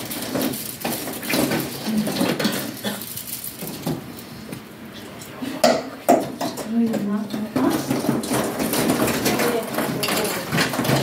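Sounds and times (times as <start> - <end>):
plastic packaging rustling: 0.0 - 4.5, 7.1 - 11.0.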